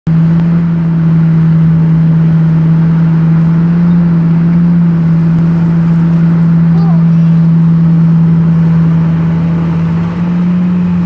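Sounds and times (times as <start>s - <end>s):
engine running steadily: 0.1s - 11.0s.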